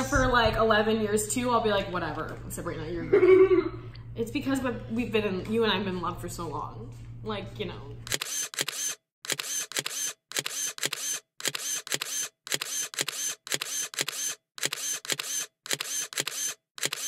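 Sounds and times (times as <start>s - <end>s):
camera shutter clicking: 8.0s - 17.0s.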